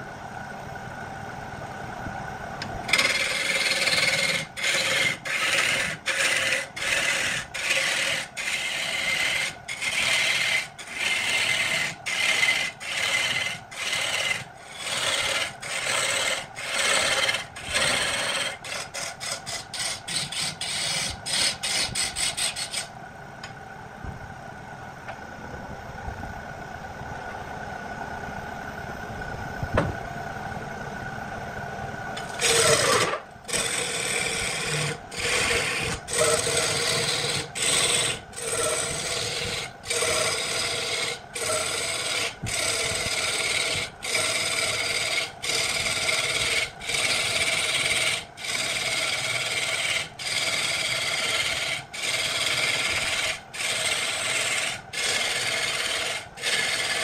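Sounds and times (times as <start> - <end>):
lathe running hum: 0.0 - 57.0
lathe tool scraping wood: 2.9 - 22.9, 32.2 - 57.0.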